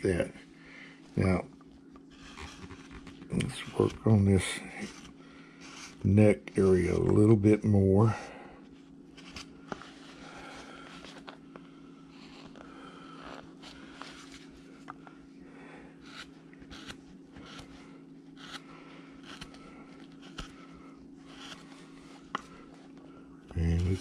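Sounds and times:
low steady hum: 0:00.0 - 0:24.0
hand gouge cutting wood: 0:16.0 - 0:17.7, 0:18.4 - 0:18.6, 0:19.2 - 0:19.6, 0:20.2 - 0:20.6, 0:21.3 - 0:21.7.

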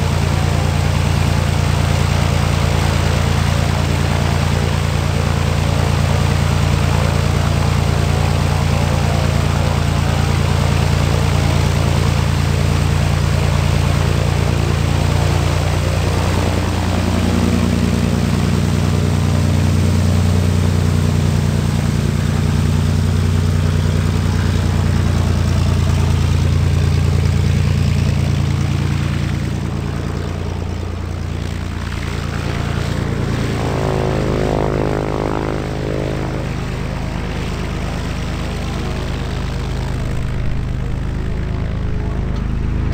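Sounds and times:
aircraft engine and propeller: 0:00.0 - 0:42.9.

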